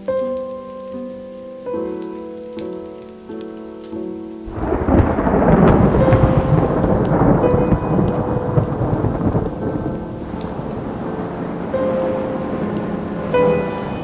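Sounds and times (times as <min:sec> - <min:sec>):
faint piano notes: 0:00.0 - 0:14.0
rain: 0:00.0 - 0:14.0
thunder rumbling: 0:04.4 - 0:14.0.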